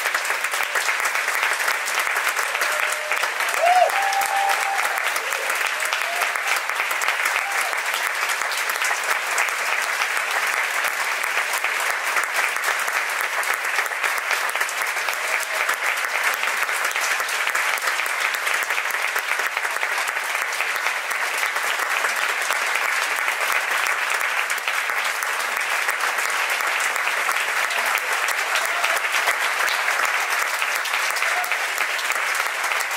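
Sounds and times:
audience applauding: 0.0 - 32.9.

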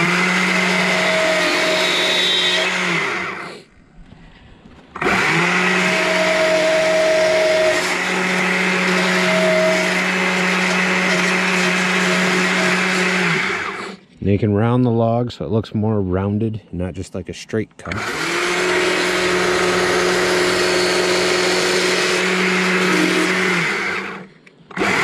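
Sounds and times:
chainsaw cutting log: 0.0 - 3.7, 5.0 - 14.0, 17.8 - 25.0.

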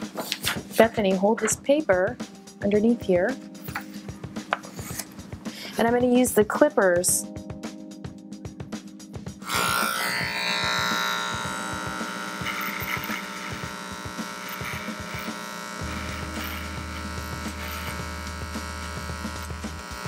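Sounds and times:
electric hair clippers buzzing: 9.4 - 20.0.

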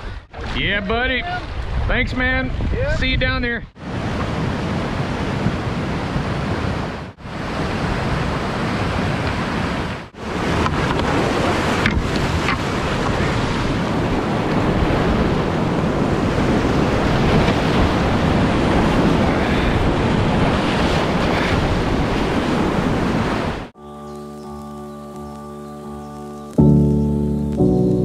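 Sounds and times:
wind noise on microphone: 0.0 - 23.7
soft music with held notes: 23.8 - 28.0.

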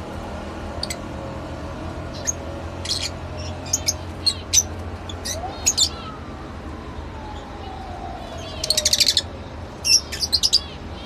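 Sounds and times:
lovebirds chirping: 2.1 - 6.2, 7.3 - 11.0.

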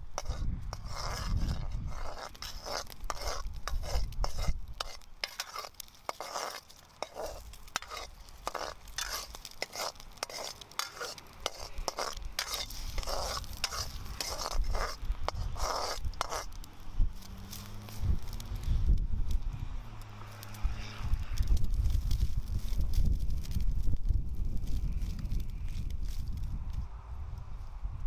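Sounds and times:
metal spoon scraping wok: 0.0 - 19.5, 20.1 - 22.8
food sizzling in pan: 1.9 - 18.8.

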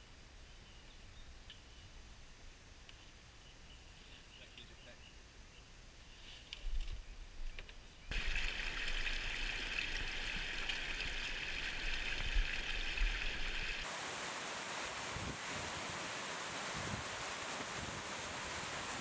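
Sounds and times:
water spilling down scree: 8.1 - 17.7
rushing mountain stream: 8.1 - 19.0.

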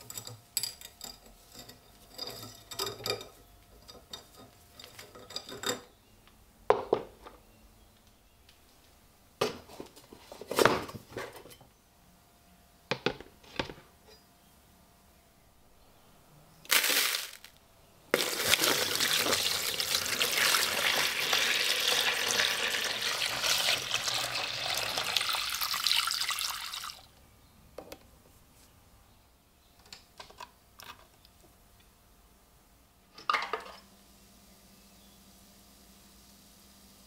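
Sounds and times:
water pouring into plastic tub: 18.2 - 27.1.

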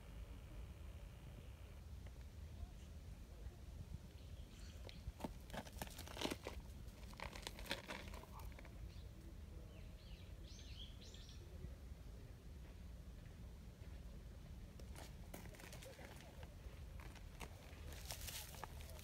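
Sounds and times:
dry leaves crackling and crunching: 5.5 - 8.7, 17.5 - 19.0.

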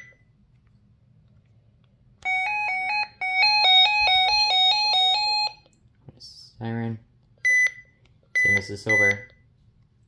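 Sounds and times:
two-tone warbling alert siren: 2.3 - 5.6.

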